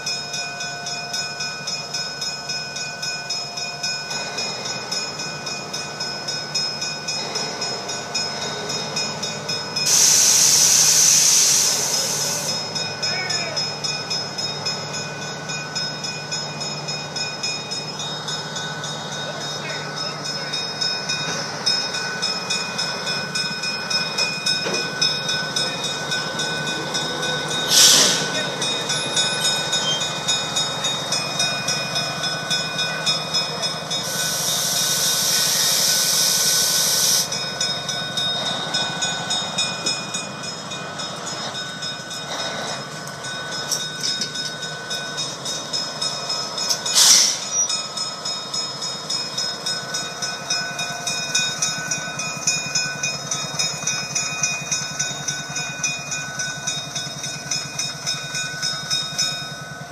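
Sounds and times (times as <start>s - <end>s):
locomotive diesel engine pulsing: 0.0s - 59.9s
loud hiss: 9.9s - 12.6s, 27.6s - 28.6s, 34.0s - 37.4s.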